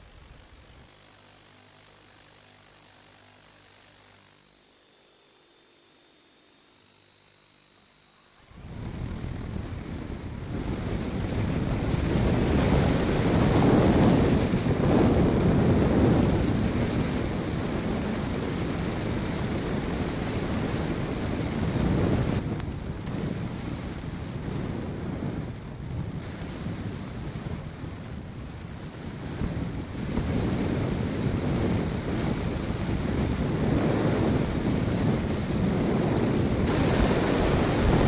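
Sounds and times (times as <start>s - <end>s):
model airplane motor and propeller: 0.0s - 38.0s
steady high whine: 0.0s - 38.0s
wind rush over microphone: 8.4s - 38.0s.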